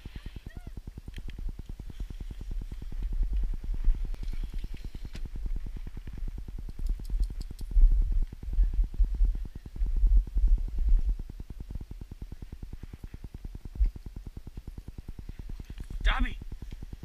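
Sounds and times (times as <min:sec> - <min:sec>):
wind buffeting microphone: 0:01.3 - 0:12.0.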